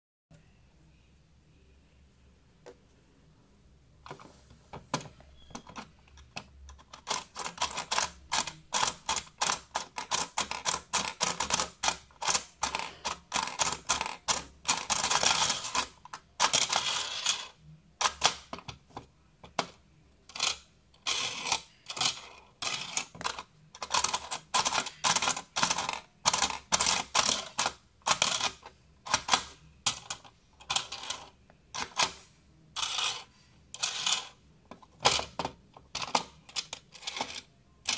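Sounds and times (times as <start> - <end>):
plastic toy clicking and clattering: 4.9 - 37.9.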